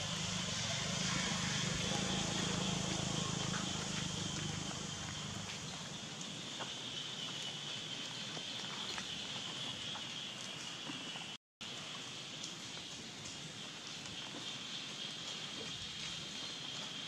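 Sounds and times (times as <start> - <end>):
constant high whine: 0.0 - 17.0
steady hiss: 10.1 - 17.0.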